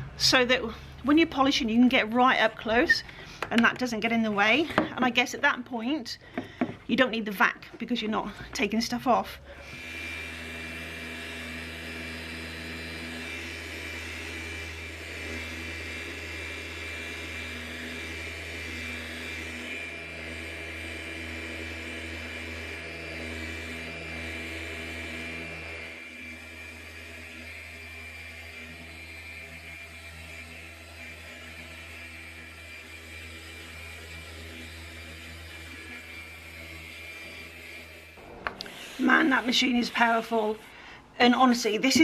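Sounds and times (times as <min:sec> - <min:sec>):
orbital sander whirring: 0:00.0 - 0:42.0
dust extractor drawing air: 0:09.4 - 0:42.0.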